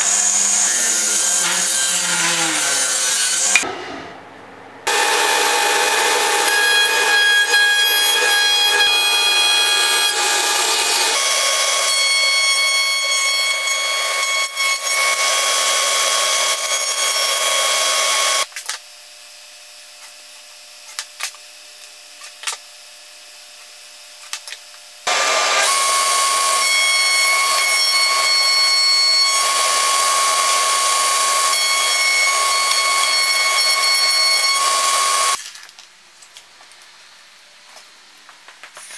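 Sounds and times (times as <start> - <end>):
wood router whining: 0.0 - 3.6, 4.9 - 18.5, 25.1 - 35.4.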